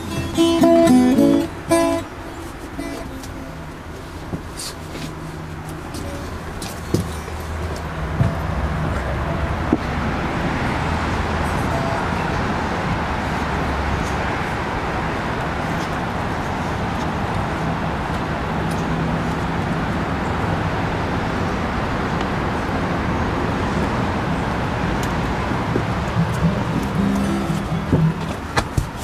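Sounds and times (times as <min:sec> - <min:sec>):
vehicle noise rushing: 0:00.0 - 0:29.0
sharp knocks: 0:25.7 - 0:29.0.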